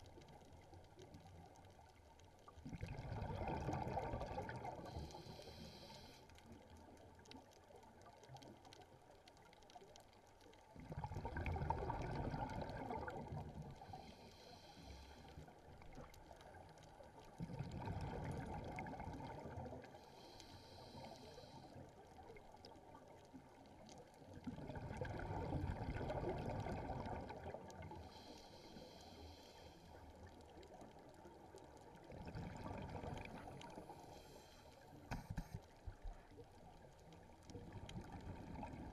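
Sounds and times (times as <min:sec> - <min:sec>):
exhaled air bubbling underwater: 0:00.0 - 0:38.9
regulator inhalation hiss: 0:05.0 - 0:06.2.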